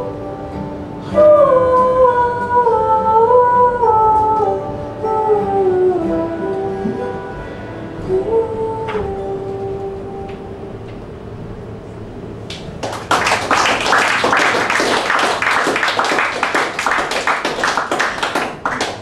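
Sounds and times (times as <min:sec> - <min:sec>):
audience applauding: 0:12.5 - 0:19.0.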